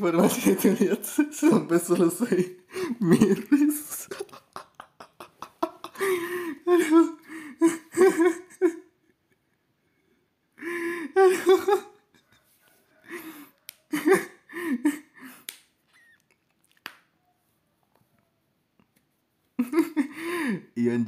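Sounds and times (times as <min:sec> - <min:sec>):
man laughing: 0:00.2 - 0:09.6, 0:11.2 - 0:12.3, 0:13.1 - 0:15.3, 0:19.6 - 0:20.5.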